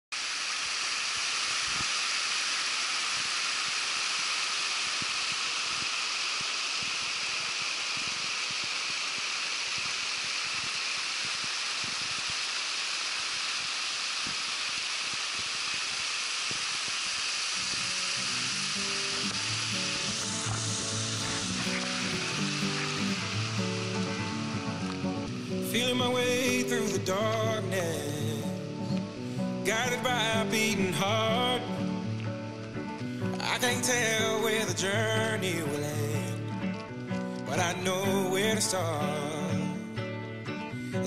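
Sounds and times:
stream cascading over rocks: 0.1s - 39.5s
music: 17.9s - 41.0s.

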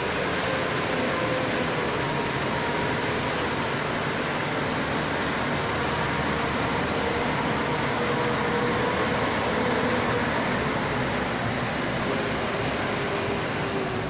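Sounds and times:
diesel truck engine running: 0.0s - 14.0s.

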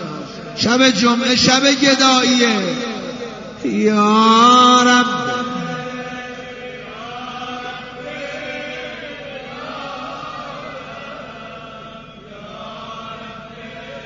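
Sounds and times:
devotional chanting voices: 0.0s - 14.0s.

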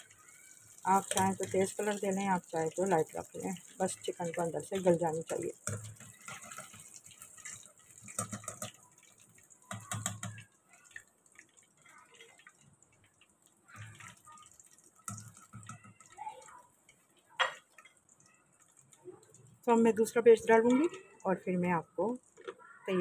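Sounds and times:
oil dripping into pan: 0.0s - 22.8s.

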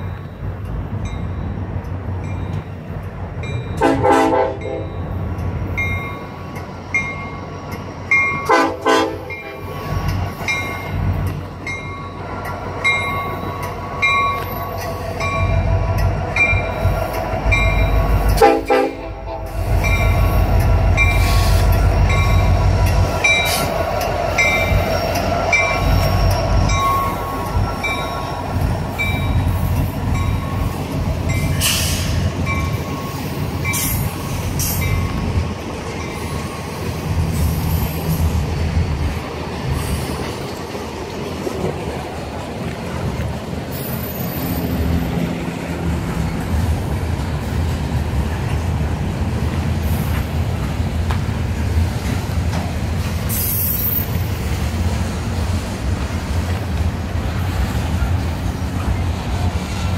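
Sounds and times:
locomotive engine rumble: 0.0s - 59.9s
train horn blasts: 3.8s - 5.0s, 8.4s - 9.7s, 17.4s - 22.6s.

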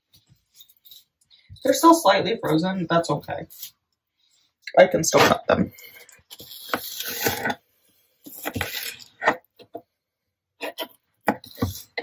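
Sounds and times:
knife scraping through meat: 5.8s - 7.6s, 8.2s - 9.4s, 10.6s - 12.0s.

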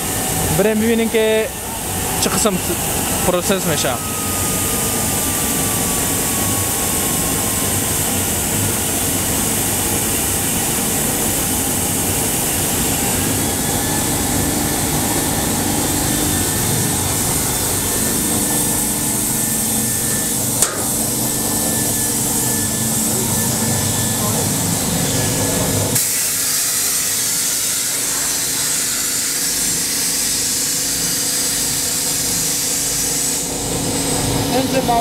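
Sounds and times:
machinery rushing like blower: 0.0s - 29.0s
faint steady whine: 0.3s - 26.0s.

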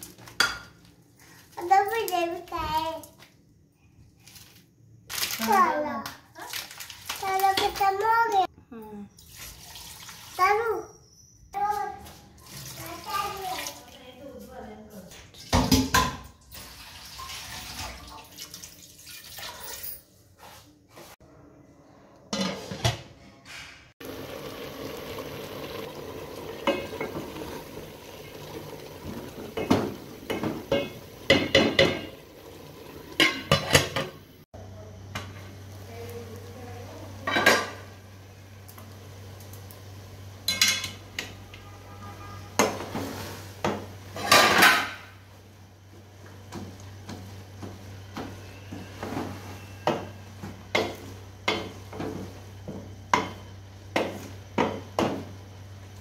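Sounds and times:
pot lid clanking: 25.6s - 27.6s, 28.4s - 34.2s.

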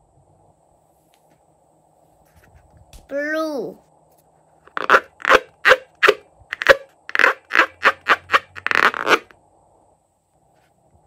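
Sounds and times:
rubber balloon squeaking: 4.7s - 9.3s.

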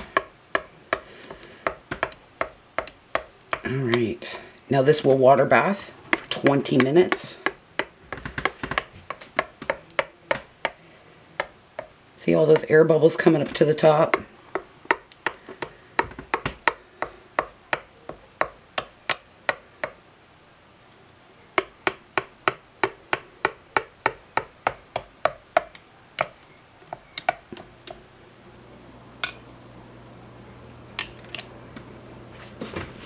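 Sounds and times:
plastic stick clicking on glass jars: 0.0s - 4.1s, 6.1s - 10.8s, 11.4s - 11.9s, 13.4s - 20.0s, 21.6s - 28.0s.

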